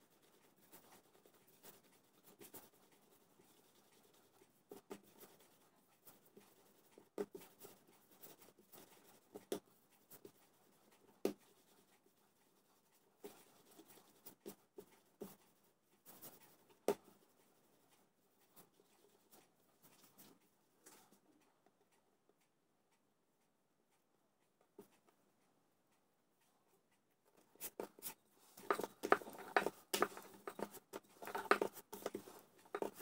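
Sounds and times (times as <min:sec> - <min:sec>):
hands rubbing dough: 0:27.3 - 0:33.0.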